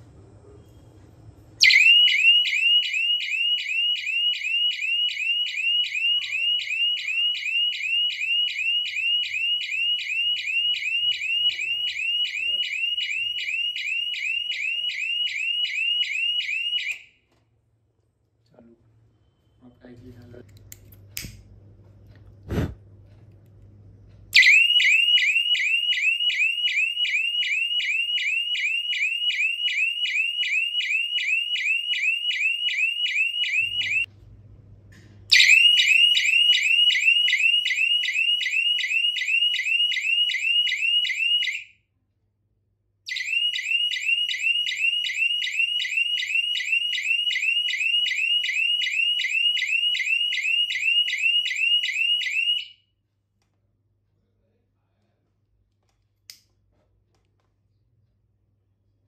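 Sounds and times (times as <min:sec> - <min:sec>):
electronic siren alarm whooping: 0:01.6 - 0:17.1, 0:24.4 - 0:34.1, 0:35.3 - 0:41.7, 0:43.1 - 0:52.8.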